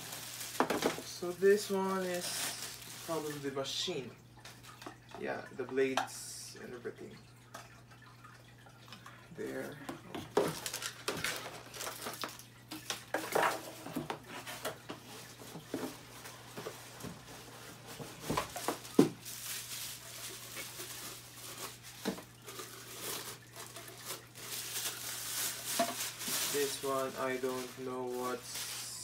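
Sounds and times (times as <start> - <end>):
plastic wrapping crinkling: 0.0 - 3.8, 10.3 - 29.0
low steady hum: 0.0 - 29.0.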